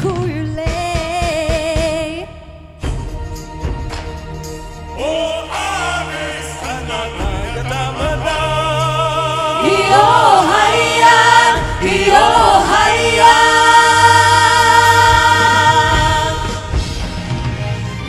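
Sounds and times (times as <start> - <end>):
vocal group singing in harmony: 4.9 - 17.4.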